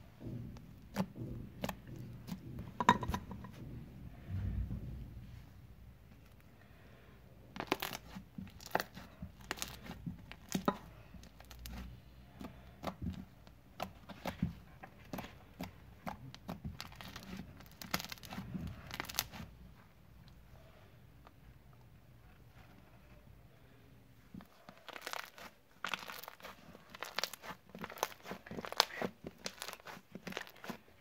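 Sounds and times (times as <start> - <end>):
slime sticky crackles: 7.6 - 12.0, 15.2 - 19.5, 24.7 - 31.0.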